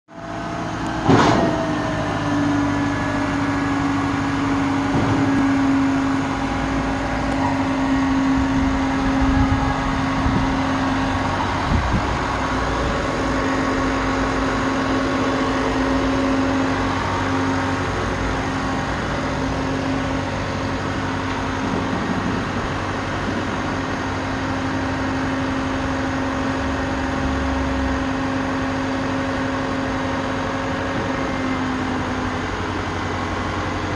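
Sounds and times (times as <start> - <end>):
tow truck engine running: 0.1 - 33.9
hydraulic flatbed sliding: 4.2 - 24.2.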